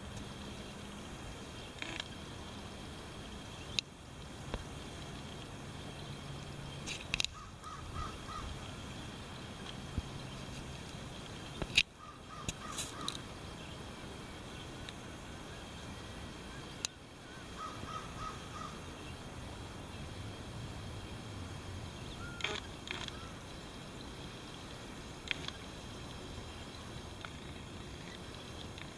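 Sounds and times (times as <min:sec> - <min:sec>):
background hiss: 0:00.0 - 0:28.9
bird calling: 0:07.2 - 0:08.6, 0:12.0 - 0:13.3, 0:16.5 - 0:19.2, 0:22.0 - 0:23.4.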